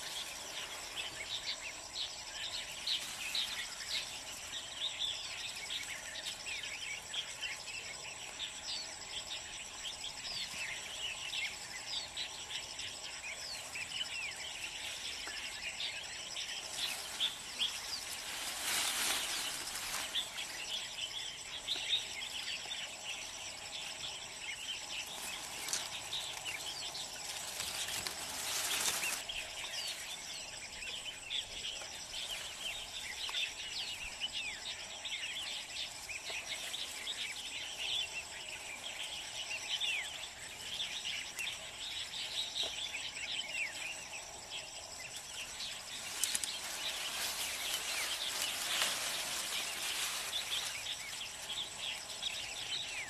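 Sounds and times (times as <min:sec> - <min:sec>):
birds chirping: 0:00.0 - 0:53.0
high insect drone: 0:00.0 - 0:53.0
leaves and twigs rustling: 0:00.0 - 0:53.0.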